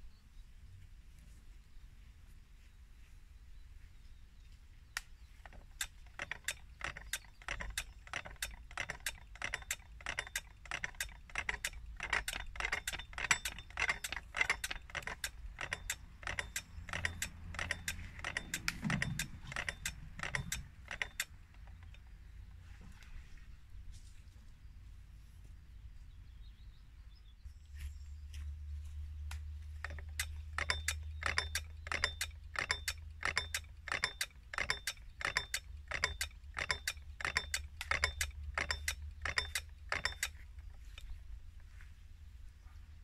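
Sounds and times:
bell hammer mechanism clicking: 5.4 - 22.1, 29.8 - 41.1.

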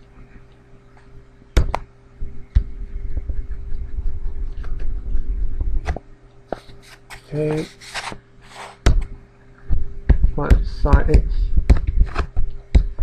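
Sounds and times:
faint electrical hum: 0.0 - 13.0
low handling rumble: 2.2 - 6.0.

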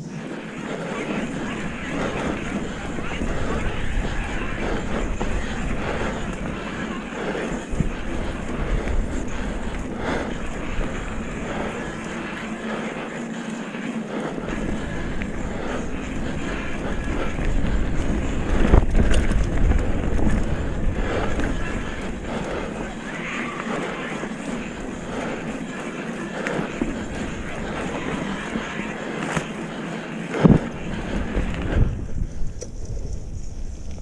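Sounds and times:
wind rumbling on microphone: 0.0 - 13.1, 14.2 - 25.7, 26.3 - 34.0
mountain bike rattle and tyre noise: 0.0 - 34.0.

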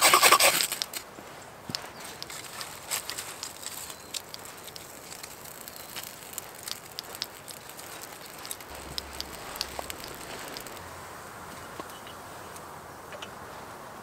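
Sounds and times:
wood fire crackling and popping: 1.7 - 11.0.

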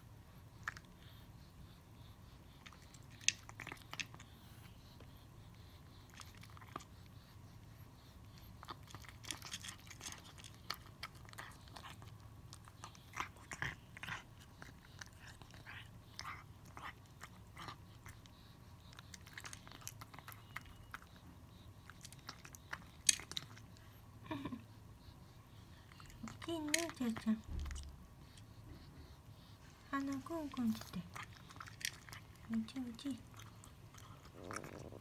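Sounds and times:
cat crunching food: 2.5 - 4.3, 6.0 - 6.9, 8.4 - 23.8, 30.2 - 35.0.

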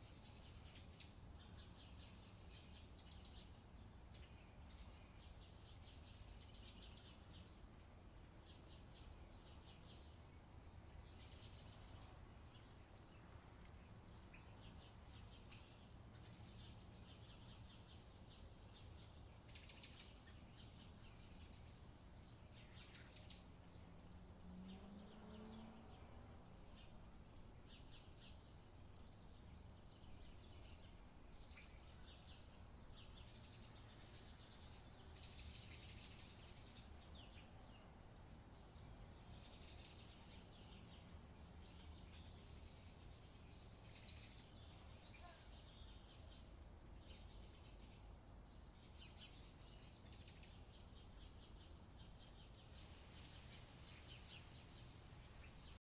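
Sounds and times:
low steady background rumble: 0.0 - 55.8
small birds chirping: 0.0 - 55.8.

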